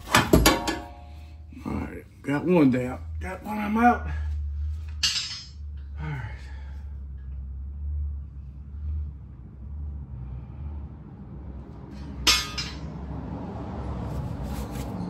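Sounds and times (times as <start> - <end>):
low steady hum: 0.0 - 13.0
metallic clink: 12.2 - 12.9.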